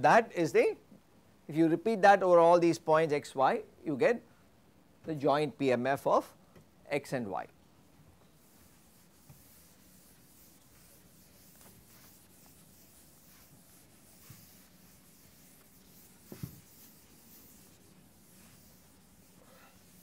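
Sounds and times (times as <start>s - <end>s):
duster rubbing chalkboard: 8.4s - 20.0s.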